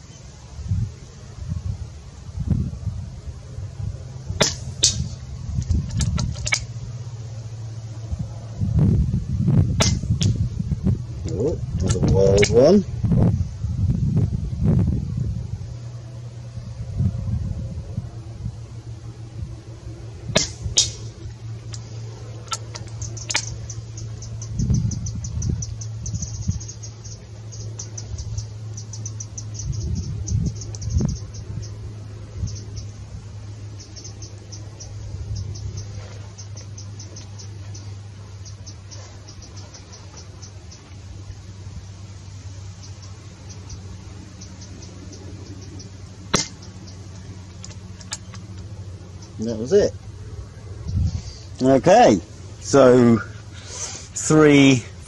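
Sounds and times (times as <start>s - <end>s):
steady low hum: 0.0s - 55.0s
wind rumble on microphone: 0.0s - 55.0s
air rifle shot: 4.4s - 5.2s, 9.8s - 10.4s, 20.3s - 21.1s, 46.3s - 46.6s
slug striking target: 4.4s - 5.2s, 9.8s - 10.4s, 20.3s - 21.1s, 46.3s - 46.6s
fast high-pitched chirping: 22.4s - 40.9s.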